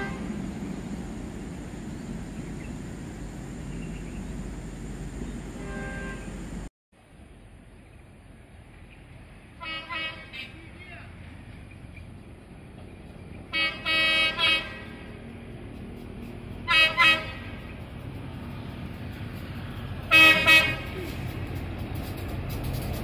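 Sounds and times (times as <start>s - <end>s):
train horn blasts: 0.0s - 0.5s, 5.5s - 6.5s, 9.6s - 10.6s, 13.5s - 15.3s, 16.6s - 17.8s, 20.0s - 21.2s
train rumble: 0.0s - 23.0s.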